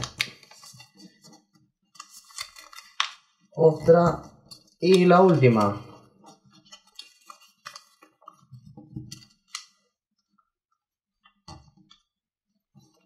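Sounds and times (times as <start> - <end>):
paper being folded and creased: 0.0 - 9.9.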